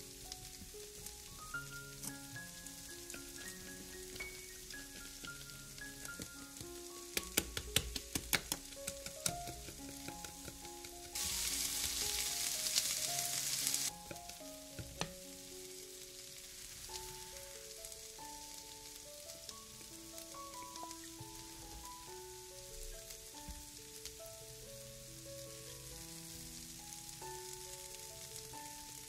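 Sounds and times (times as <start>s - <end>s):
soft background music: 0.0s - 29.0s
vegetables sizzling in frying pan: 0.0s - 29.0s.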